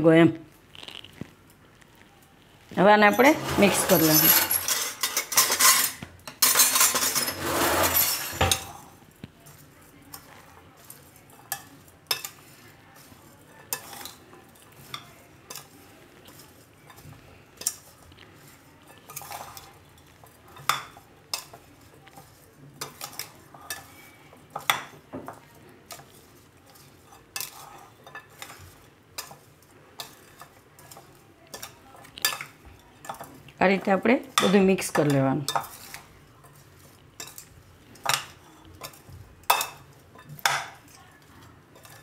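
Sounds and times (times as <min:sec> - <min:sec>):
soft scraping of food mixture: 0:00.4 - 0:42.0
spoon clinking against glass bowl: 0:37.2 - 0:40.8.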